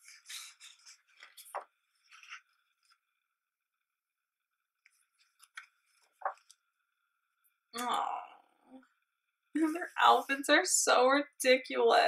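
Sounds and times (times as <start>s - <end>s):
book page turning: 0.0s - 3.2s, 4.8s - 6.6s.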